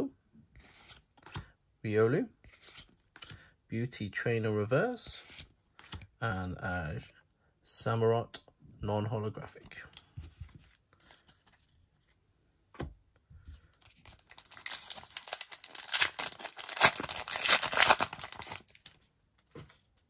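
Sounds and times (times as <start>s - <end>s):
foil wrapper tearing and crinkling: 14.2s - 18.9s.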